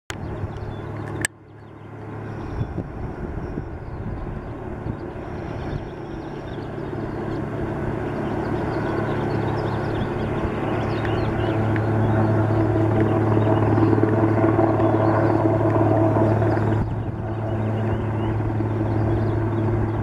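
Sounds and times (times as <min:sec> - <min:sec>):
helicopter rotors droning: 0:00.1 - 0:20.0.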